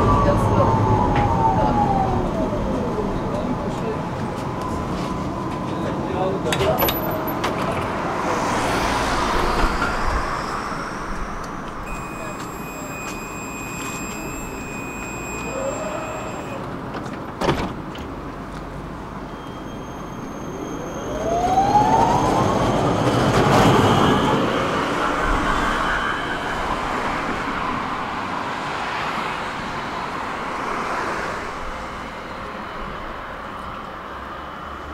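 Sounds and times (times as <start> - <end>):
tram drive whine rising: 7.4 - 16.8, 19.0 - 34.7.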